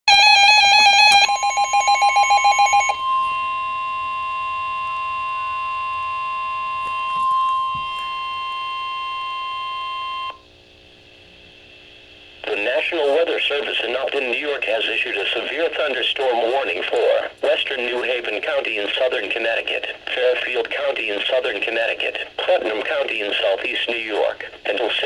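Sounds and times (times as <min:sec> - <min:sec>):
pulsing electronic alarm beeps: 0:00.1 - 0:10.4
steady alarm tone: 0:00.1 - 0:10.4.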